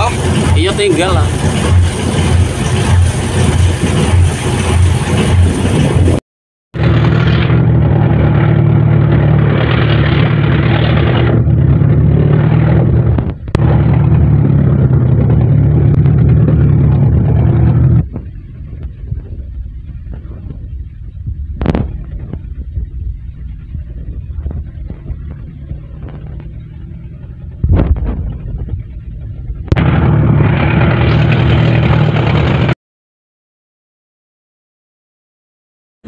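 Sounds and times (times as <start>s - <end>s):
boat diesel engine: 0.0s - 6.2s, 6.8s - 32.8s
rushing water: 0.0s - 6.2s
wind: 0.0s - 6.2s, 6.8s - 32.8s.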